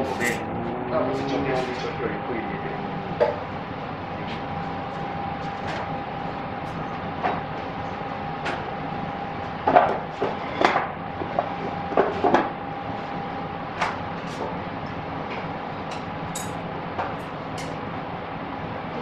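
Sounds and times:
steady background hum: 0.0 - 19.0
tableware clinking: 16.4 - 16.6.

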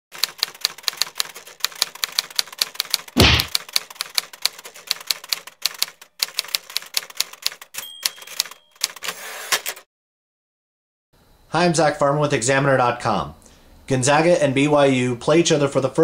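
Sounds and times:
typewriter keys clacking: 0.2 - 9.8
heavy typewriter thump: 3.2 - 3.6.

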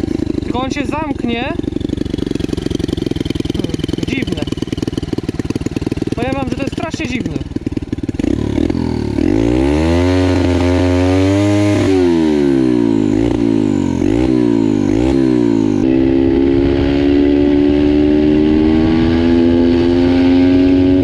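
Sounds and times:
pitbike engine revving: 0.0 - 21.0
person talking: 0.5 - 1.6, 3.5 - 4.6, 6.1 - 7.5.

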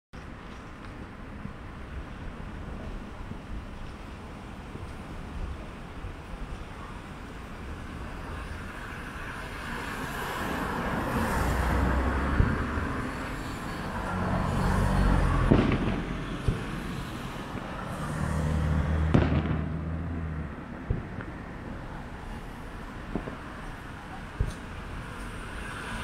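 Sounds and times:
road traffic passing: 0.2 - 26.0
distant firework bangs: 15.3 - 17.9, 18.9 - 20.0, 20.8 - 21.4, 23.0 - 23.8.

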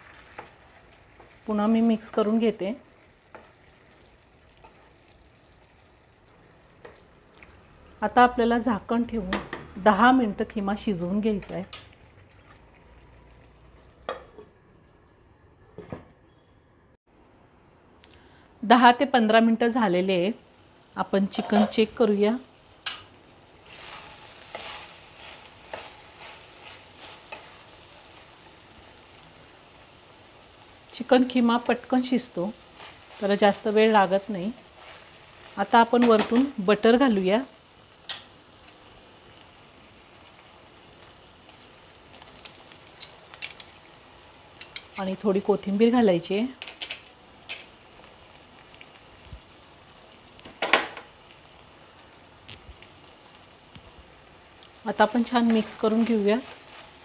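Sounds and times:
light sizzle from pan: 0.0 - 16.6, 17.2 - 57.0
spatula scraping frying pan: 23.7 - 27.8.

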